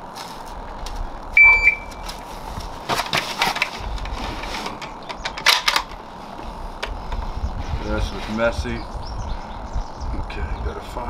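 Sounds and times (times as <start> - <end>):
short high electronic beep: 1.4 - 2.0
clattering and shuffling: 1.9 - 8.5.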